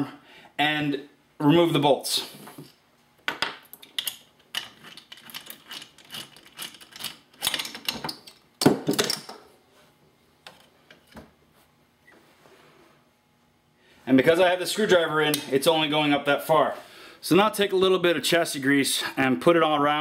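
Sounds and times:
metal parts clanking: 3.9 - 9.4.

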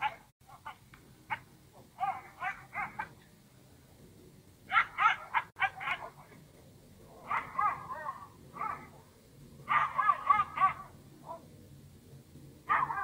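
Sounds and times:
small dog yapping: 0.0 - 1.4, 2.0 - 3.2, 4.7 - 6.2, 7.3 - 9.0, 9.7 - 11.4, 12.7 - 13.0.

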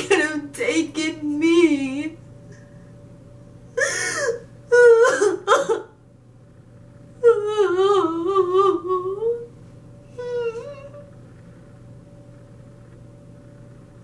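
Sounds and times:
woman sobbing and wailing: 3.8 - 6.0, 7.2 - 9.5.

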